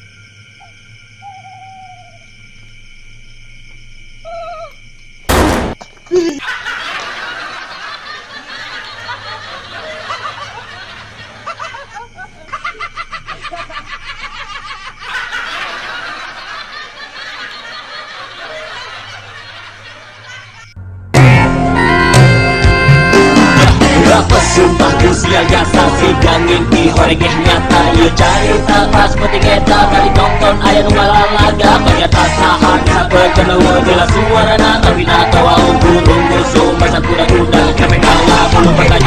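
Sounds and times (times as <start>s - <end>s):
hooting call: 0.6s - 2.3s, 4.2s - 4.8s, 28.4s - 32.0s
loud bang: 5.3s - 5.8s
people laughing: 6.1s - 20.7s, 23.2s - 39.0s.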